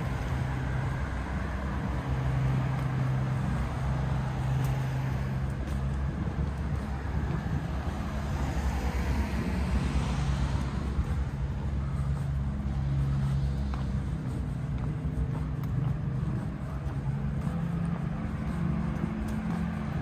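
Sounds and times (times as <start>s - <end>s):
car passing: 0.0s - 20.0s
vehicle engine running: 0.0s - 20.0s.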